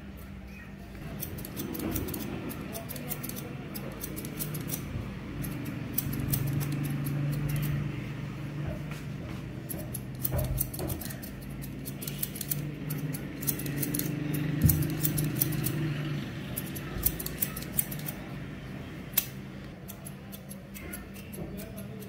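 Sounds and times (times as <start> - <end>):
scissors snipping hair: 1.0 - 7.8, 9.7 - 15.8, 16.5 - 18.2, 19.1 - 22.0.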